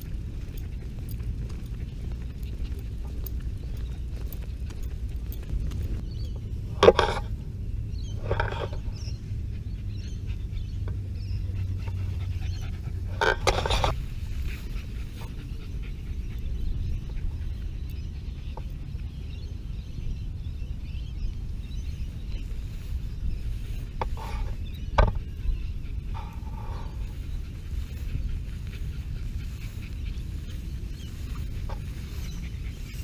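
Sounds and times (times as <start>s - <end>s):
dog panting: 0.0s - 6.0s, 8.7s - 19.4s, 24.0s - 33.0s
low rumble: 0.0s - 33.0s.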